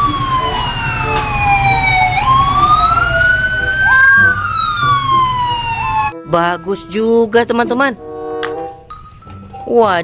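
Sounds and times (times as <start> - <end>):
police sirens wailing: 0.0 - 7.4.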